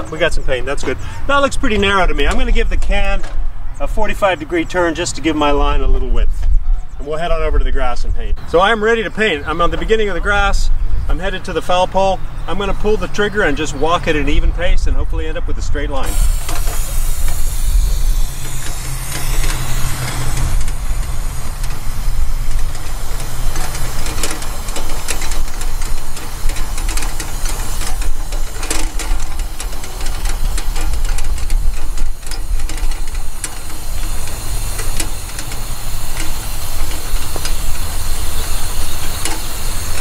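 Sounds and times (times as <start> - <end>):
low rumble: 14.5 - 28.6
cart clicks and rattles: 15.9 - 40.0
aerosol paint spraying hiss: 16.0 - 40.0.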